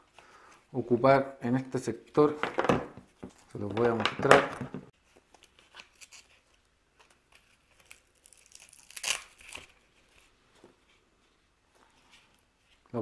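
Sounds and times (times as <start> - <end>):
rustling: 4.9 - 13.0
velcro strap ripping: 5.5 - 6.6, 7.3 - 9.9.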